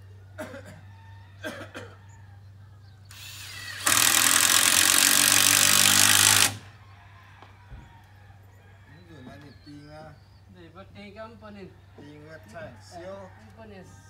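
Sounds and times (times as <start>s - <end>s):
power drill running: 3.1s - 6.7s.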